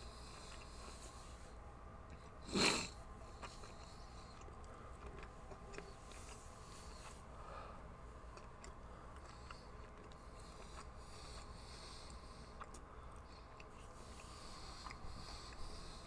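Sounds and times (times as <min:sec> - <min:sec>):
faint chewing: 0:00.0 - 0:16.0
congested nose sniff: 0:02.4 - 0:04.4, 0:13.8 - 0:16.0.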